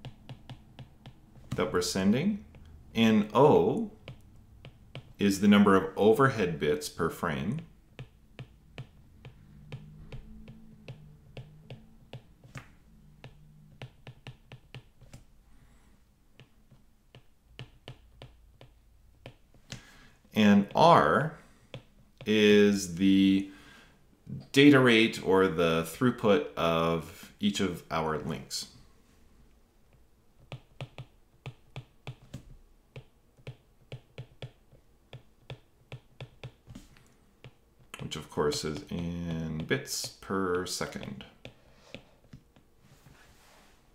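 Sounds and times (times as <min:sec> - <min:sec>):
stylus tapping on tablet screen: 0:00.0 - 0:01.7, 0:03.6 - 0:05.2, 0:07.6 - 0:15.3, 0:16.3 - 0:19.9, 0:21.7 - 0:22.3, 0:29.9 - 0:42.7.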